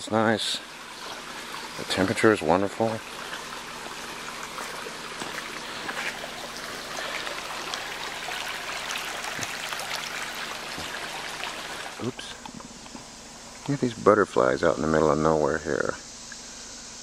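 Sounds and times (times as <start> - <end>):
creek babbling over stones: 0.0 - 12.4.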